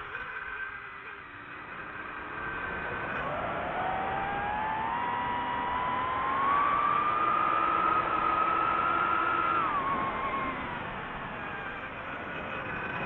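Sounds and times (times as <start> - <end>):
drone motors whining: 0.0 - 13.0.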